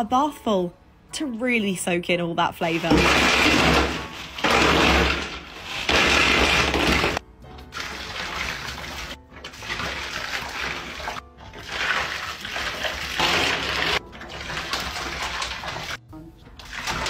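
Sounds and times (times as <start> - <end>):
coffee pouring onto ice cubes: 2.9 - 16.0.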